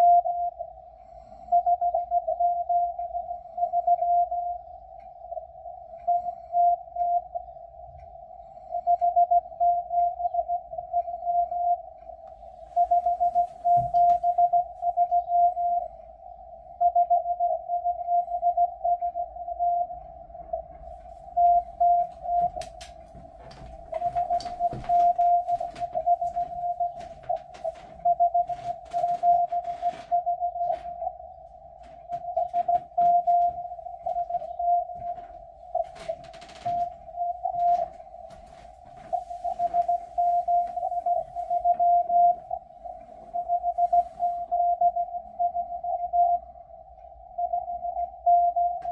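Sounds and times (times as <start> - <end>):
morse code tone: 0.0 - 7.9, 8.6 - 48.9
faint radio static: 20.4 - 44.8.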